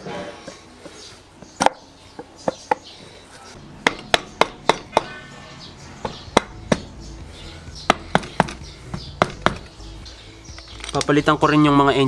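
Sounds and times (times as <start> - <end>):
knocks on metal engine cover: 7.9 - 9.7.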